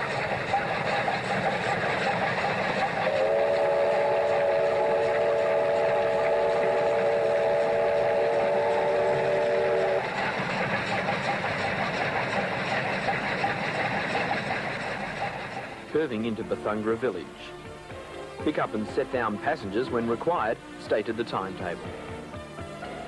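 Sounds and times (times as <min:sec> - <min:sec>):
steam train running: 0:00.0 - 0:23.0
steam locomotive whistle: 0:02.9 - 0:10.5.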